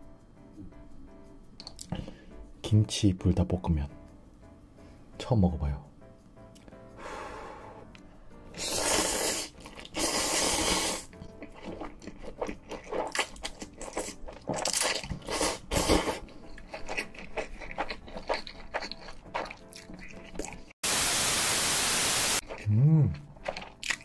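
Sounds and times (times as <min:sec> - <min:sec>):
loud noodle slurping: 0:08.6 - 0:11.2
wet chewing clicks: 0:11.1 - 0:20.7, 0:22.4 - 0:24.0.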